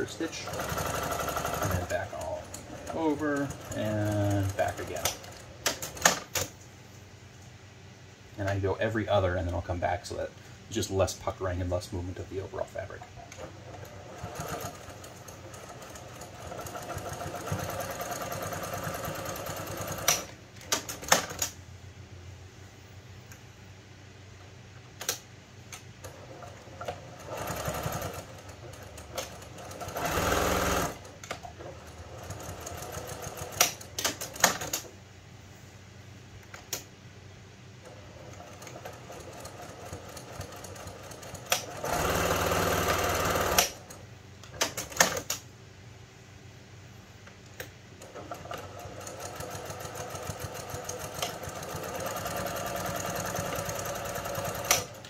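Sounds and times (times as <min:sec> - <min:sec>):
sewing machine stitching: 0:00.0 - 0:06.4, 0:13.4 - 0:21.4, 0:26.1 - 0:34.8, 0:37.9 - 0:44.0, 0:48.0 - 0:55.0.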